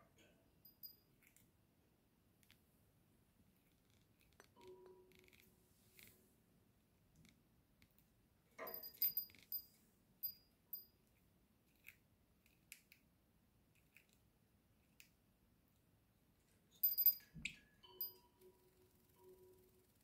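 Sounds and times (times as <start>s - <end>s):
small metal bell tinkling: 0.6s - 1.2s, 8.6s - 11.0s, 16.7s - 19.4s.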